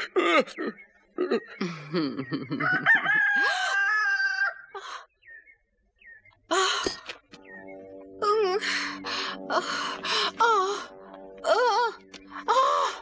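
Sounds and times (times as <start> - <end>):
rooster crowing: 2.6 - 4.7.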